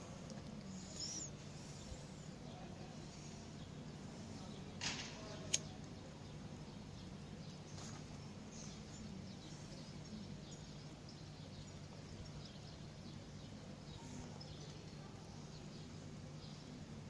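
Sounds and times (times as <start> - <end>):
distant small birds chirping: 0.0 - 17.0
steady low hum: 0.0 - 17.0.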